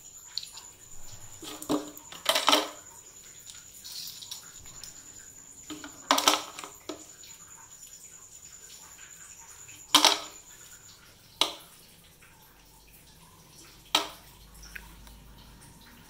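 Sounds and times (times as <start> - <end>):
sharp clatters on tile floor: 0.4 - 5.0, 5.7 - 7.1, 9.9 - 10.4.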